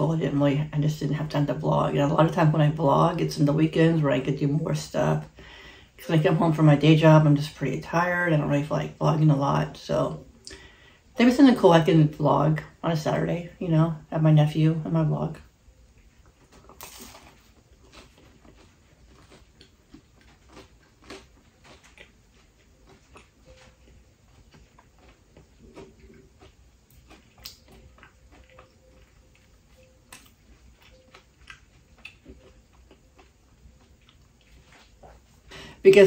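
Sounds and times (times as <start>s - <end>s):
person chewing pizza: 15.9s - 35.6s.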